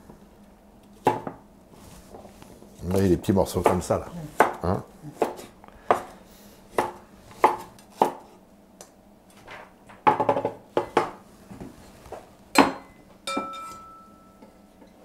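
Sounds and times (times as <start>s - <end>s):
cleaver chopping on wooden board: 3.6s - 4.6s, 6.7s - 8.3s
knock on cutting board: 10.0s - 11.1s
clink of glass bowl: 12.6s - 14.6s.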